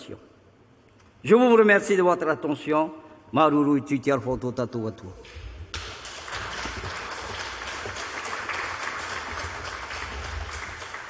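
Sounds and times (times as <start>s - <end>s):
audience applauding: 5.7s - 11.0s.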